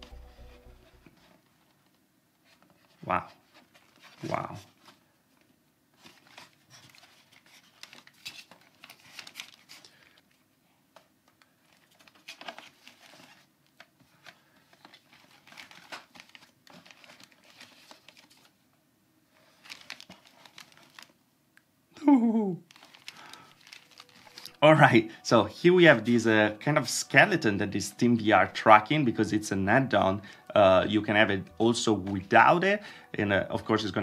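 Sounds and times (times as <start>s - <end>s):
plastic headset handling noise: 0.0s - 18.6s, 19.4s - 21.2s, 22.6s - 24.6s.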